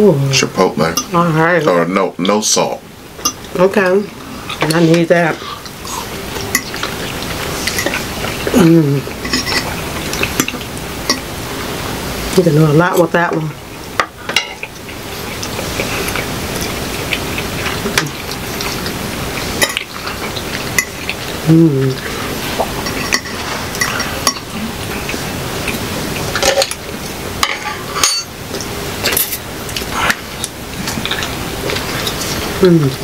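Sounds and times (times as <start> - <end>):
steady hiss: 0.0 - 33.0
person humming: 8.5 - 9.1, 21.4 - 22.0, 32.6 - 33.0
forks clinking on plates: 9.2 - 11.2, 27.4 - 28.3, 29.0 - 29.4.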